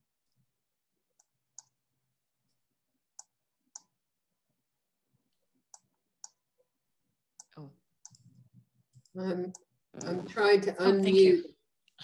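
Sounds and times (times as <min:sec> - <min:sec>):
computer mouse clicks: 0:07.4 - 0:10.2.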